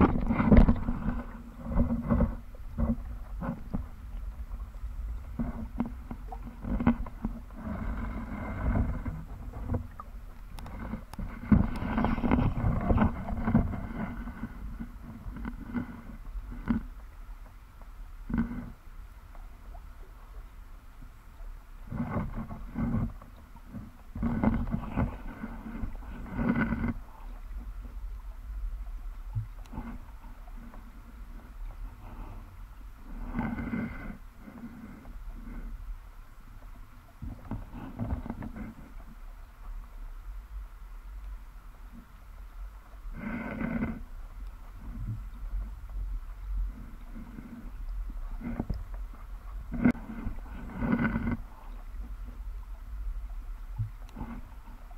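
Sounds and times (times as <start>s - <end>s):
water stirring: 0.0s - 17.1s
underwater rumble of moving water: 0.0s - 54.9s
water rushing: 0.0s - 54.9s.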